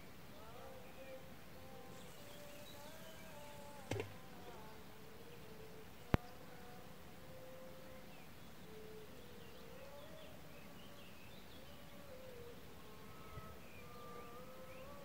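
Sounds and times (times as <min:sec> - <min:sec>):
faint insect-like buzzing: 0:00.4 - 0:11.0, 0:11.8 - 0:15.0
sharp click: 0:03.7 - 0:04.2.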